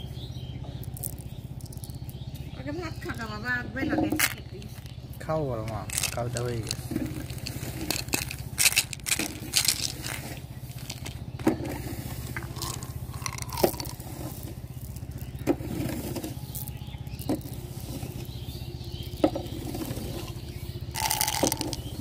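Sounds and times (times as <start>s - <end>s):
steady low hum: 0.0s - 22.0s
candies rattling in plastic bottle: 4.1s - 4.9s, 5.7s - 11.2s, 12.3s - 15.4s, 21.0s - 22.0s.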